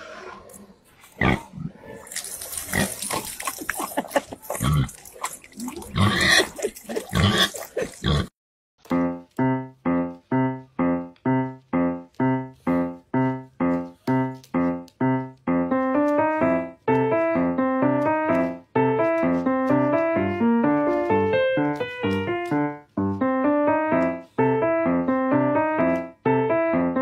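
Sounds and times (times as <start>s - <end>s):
pig grunting: 0.0s - 8.3s
water splashing from a tap: 2.0s - 8.1s
piano music: 8.8s - 27.0s.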